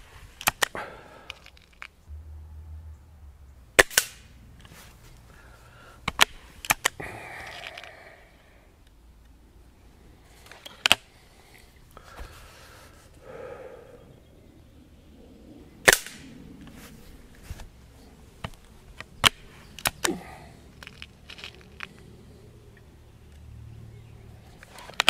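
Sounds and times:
air rifle shot: 3.8s - 4.4s, 15.8s - 16.3s
metallic clicks of rifle cocking: 6.1s - 8.0s, 20.8s - 22.1s.

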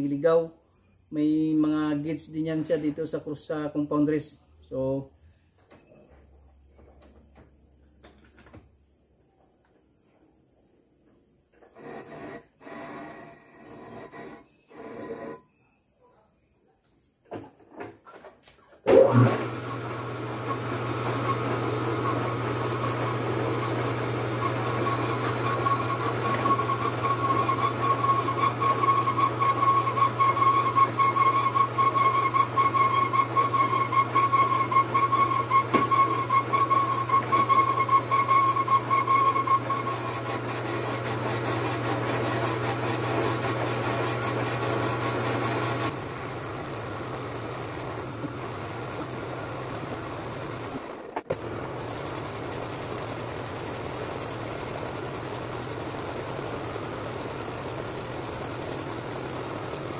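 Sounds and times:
cutting tool whine: 11.6s - 15.4s, 18.9s - 59.9s
lathe motor hum: 11.8s - 15.2s, 18.9s - 59.9s.

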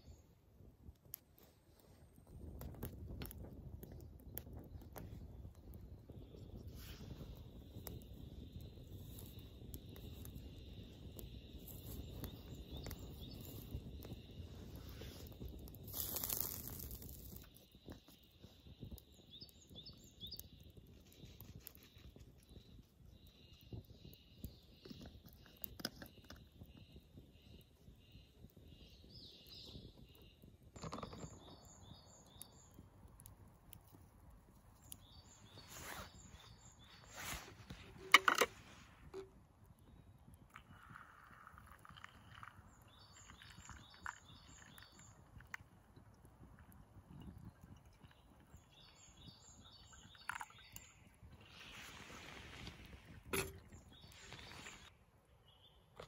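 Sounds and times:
fire crackling and popping: 0.0s - 56.0s
low rumble of flames: 0.0s - 56.0s
rustling hiss: 8.3s - 17.6s, 35.0s - 39.1s, 51.4s - 53.2s, 53.8s - 54.9s
birds chirping: 39.9s - 45.5s, 47.2s - 55.9s
ground coffee pouring into filter: 40.5s - 45.5s.

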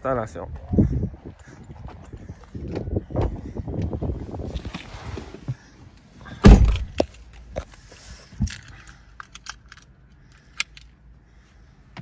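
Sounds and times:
car door shutting: 6.4s - 7.0s.

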